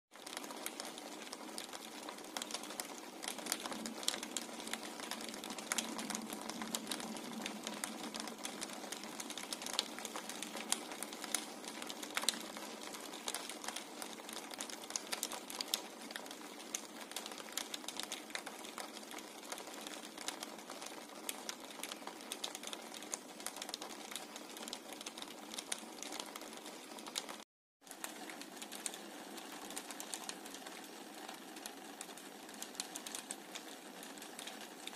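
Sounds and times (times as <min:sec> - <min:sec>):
rain drops tapping on glass: 0:00.2 - 0:34.9
steady rain hiss: 0:00.2 - 0:34.9.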